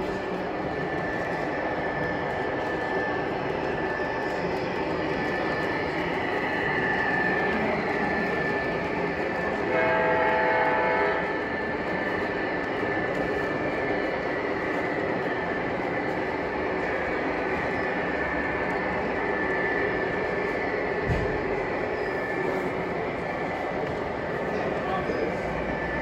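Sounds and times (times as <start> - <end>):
model train running rumble: 0.0 - 26.0
model train diesel horn: 9.6 - 11.4.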